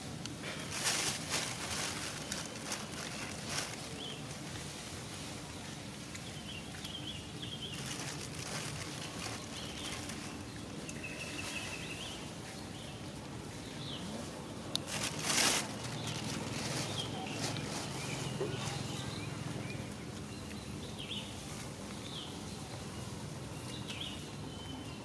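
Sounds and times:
rustling noise: 0.0s - 19.3s.

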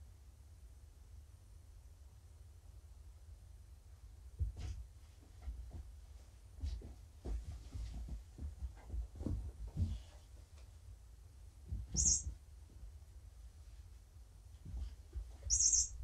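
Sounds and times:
dull thumps: 4.4s - 10.5s
short high squeak: 12.0s - 12.3s, 15.5s - 16.0s.

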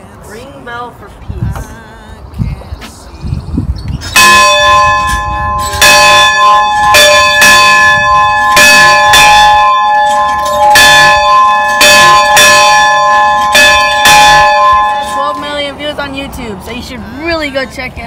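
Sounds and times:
large bell clanging: 4.0s - 15.8s.

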